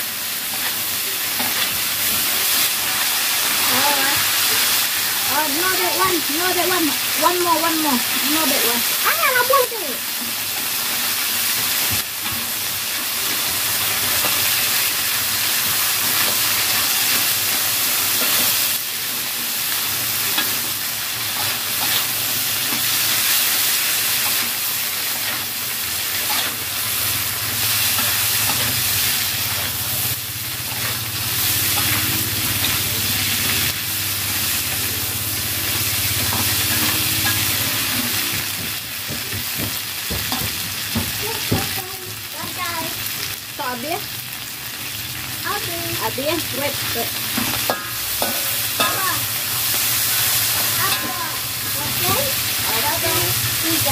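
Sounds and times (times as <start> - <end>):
beans sizzling in a wok: 0.0 - 53.9
metal spatula scraping a wok: 24.2 - 33.8, 47.1 - 53.2.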